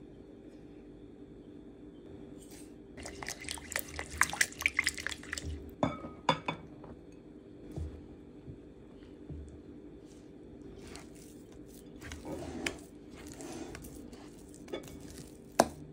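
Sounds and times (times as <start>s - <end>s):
flour stirred by hand: 2.4s - 5.6s, 10.0s - 15.9s.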